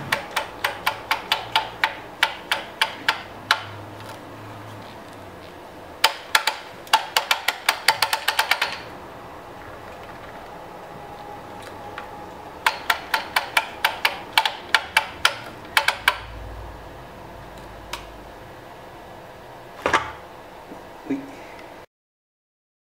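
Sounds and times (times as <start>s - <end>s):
sharp clicks of load adjuster: 0.0s - 4.2s, 12.6s - 16.3s
exercise bike flywheel humming: 0.0s - 21.8s
low rumble: 8.8s - 13.2s, 15.1s - 19.8s.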